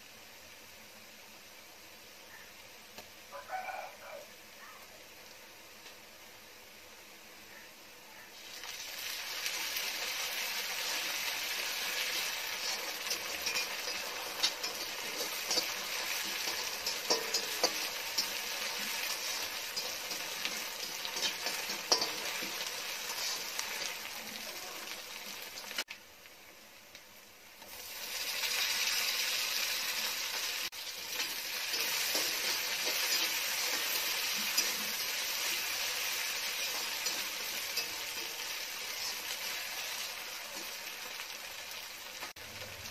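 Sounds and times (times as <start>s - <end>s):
onions sizzling in hot oil: 0.0s - 42.9s
metal spatula scraping pan: 10.6s - 24.4s, 30.9s - 40.8s.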